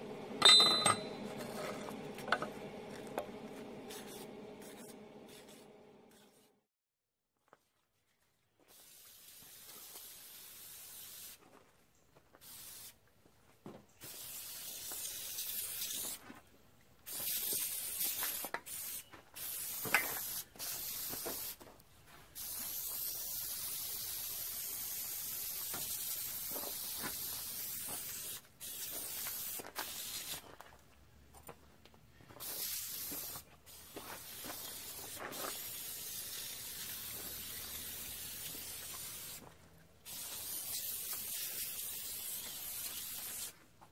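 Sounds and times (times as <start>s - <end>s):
aerosol spray can hissing: 3.9s - 6.5s, 17.1s - 21.6s, 22.4s - 30.4s, 32.4s - 39.4s, 40.1s - 43.6s.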